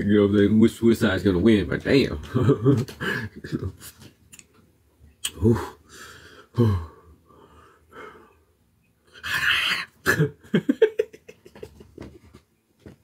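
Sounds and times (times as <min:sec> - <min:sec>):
man coughing: 0:10.0 - 0:10.4.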